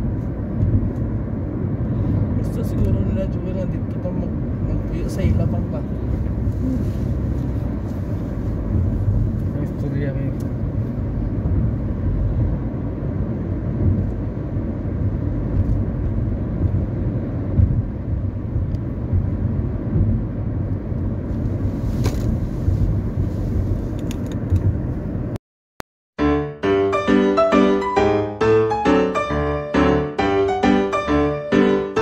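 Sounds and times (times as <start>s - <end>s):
car interior road rumble: 0.0s - 25.4s.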